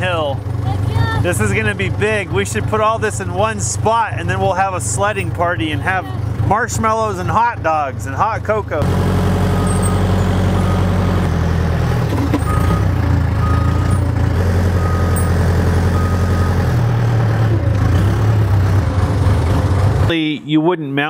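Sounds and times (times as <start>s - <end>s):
diesel engine running: 0.0s - 20.1s
reversing alarm beeps: 9.5s - 11.3s, 12.4s - 14.1s, 14.8s - 16.6s.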